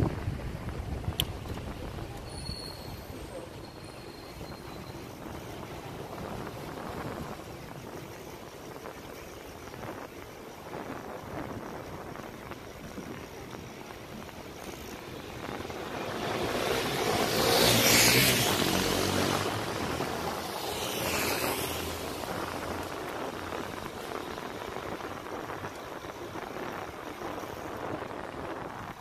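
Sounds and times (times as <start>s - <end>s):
wind and road noise: 0.0s - 29.0s
motor vehicle passing: 15.4s - 24.7s.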